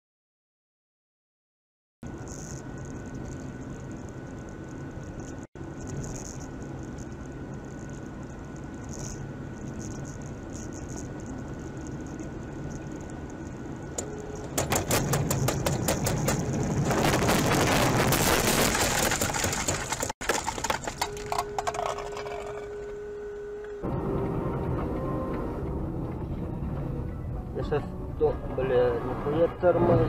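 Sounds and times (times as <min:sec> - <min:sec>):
steady hum: 0:02.0 - 0:19.8
car road noise: 0:02.1 - 0:30.0
crunching knocks: 0:14.4 - 0:21.9.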